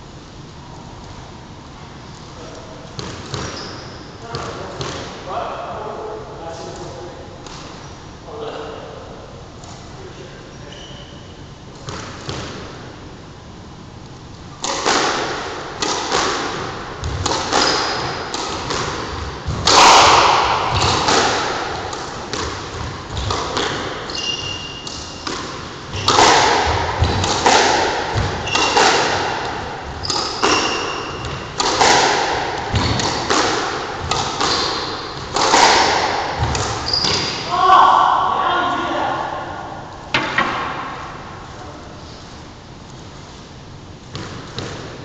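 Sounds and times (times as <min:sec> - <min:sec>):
squash ball knocks echoing: 0:02.8 - 0:05.2, 0:14.6 - 0:38.3, 0:40.0 - 0:41.4
sneakers squeaking on wooden floor: 0:03.0 - 0:04.9, 0:10.5 - 0:11.4, 0:17.0 - 0:19.6, 0:22.4 - 0:27.3, 0:28.1 - 0:32.0, 0:32.6 - 0:33.3, 0:34.0 - 0:35.7, 0:36.4 - 0:37.5.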